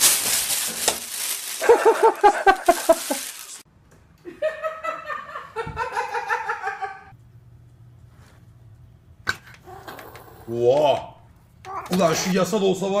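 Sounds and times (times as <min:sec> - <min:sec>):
person laughing: 0:01.6 - 0:03.4.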